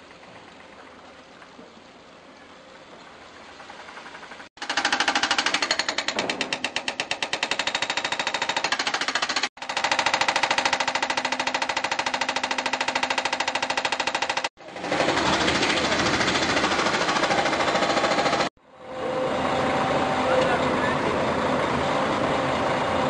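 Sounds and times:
hydraulic hammer pounding boulder: 0:04.3 - 0:18.5
diesel engine running: 0:14.6 - 0:23.0.

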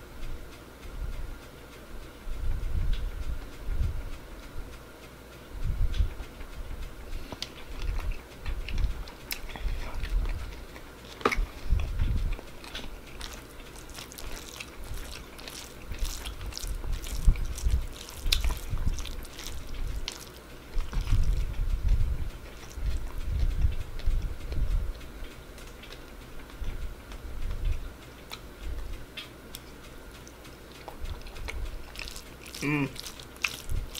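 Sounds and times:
person chewing wetly: 0:07.2 - 0:33.9
wet smacking clicks: 0:07.3 - 0:24.6, 0:25.6 - 0:33.9.

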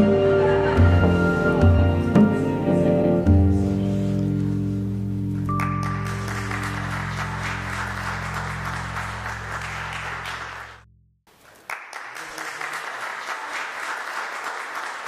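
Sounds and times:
music with low chords: 0:00.0 - 0:11.0
crowd applauding: 0:05.5 - 0:15.0.

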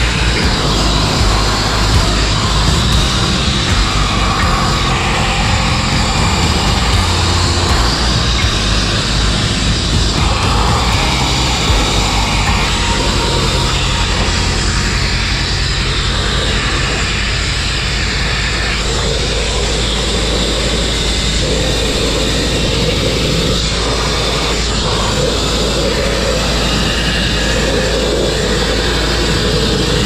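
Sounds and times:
grit blasting against steel: 0:00.0 - 0:20.0
low hum: 0:00.0 - 0:30.0.

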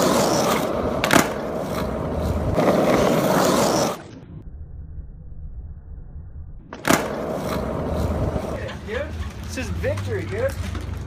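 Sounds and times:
skateboard clack: 0:00.0 - 0:04.1, 0:06.7 - 0:11.0
skateboard wheels rolling on asphalt: 0:00.0 - 0:04.4, 0:06.7 - 0:11.0.

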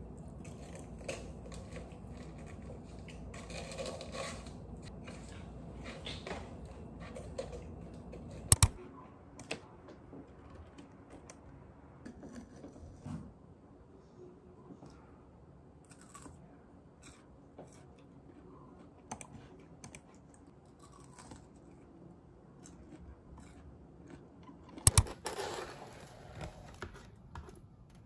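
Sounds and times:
chewing crunches and clicks: 0:15.8 - 0:16.4, 0:17.0 - 0:25.0.

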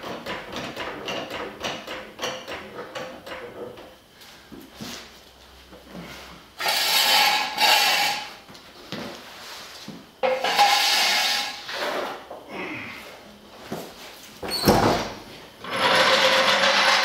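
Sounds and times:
metal jack stand scraping on concrete: 0:06.6 - 0:08.4, 0:10.2 - 0:12.1, 0:15.6 - 0:17.0.

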